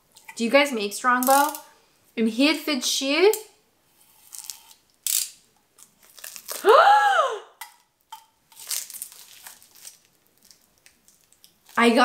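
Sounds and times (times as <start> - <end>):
paper wrapping crinkling: 5.8 - 6.7, 8.5 - 12.0
woman's drawn-out exclamation: 6.6 - 7.5.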